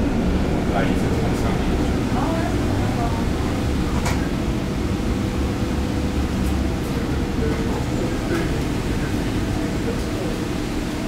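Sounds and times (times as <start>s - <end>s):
tram rumbling on rails: 0.0s - 11.0s.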